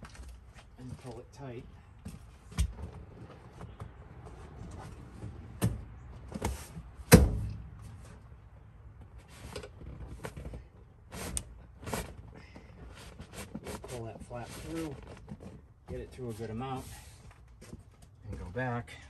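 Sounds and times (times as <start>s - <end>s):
sharp thump: 7.1s - 7.6s.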